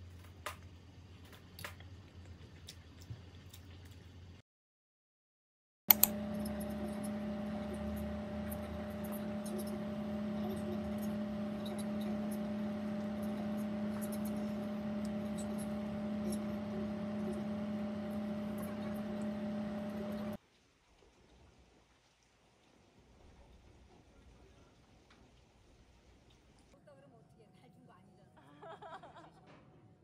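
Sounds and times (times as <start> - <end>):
steady machine hum: 5.9 - 20.4.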